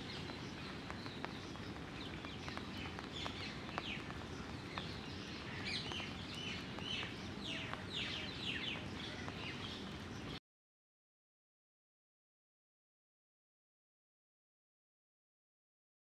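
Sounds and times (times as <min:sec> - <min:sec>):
birds chirping: 0:00.0 - 0:10.4
low background noise: 0:00.0 - 0:10.4.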